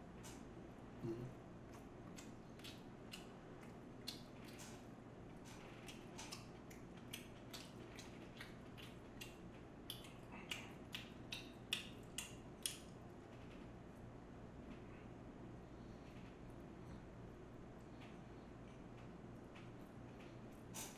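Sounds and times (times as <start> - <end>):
chewing with wet mouth clicks: 1.6 - 13.5.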